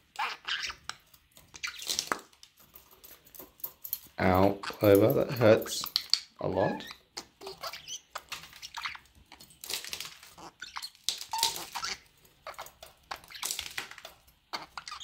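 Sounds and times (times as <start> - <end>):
budgerigar chirping and squeaking: 0.1 - 2.2, 6.0 - 9.1, 10.3 - 15.0.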